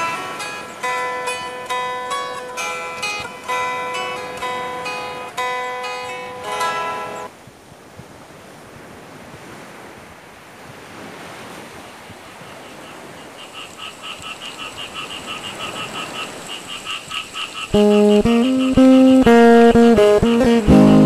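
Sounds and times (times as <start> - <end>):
sea surf breaking on a beach: 0.0 - 17.8
fast even chirping: 17.7 - 21.0.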